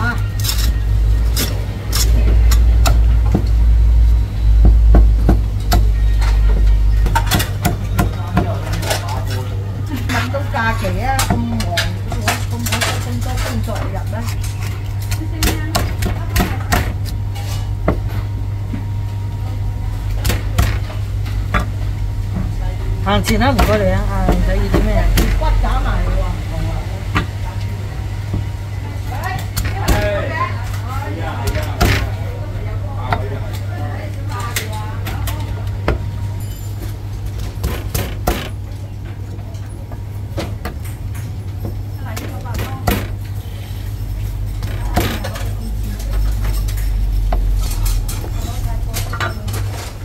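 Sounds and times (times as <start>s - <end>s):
low hum: 0.0s - 8.0s
steady low hum: 0.0s - 50.0s.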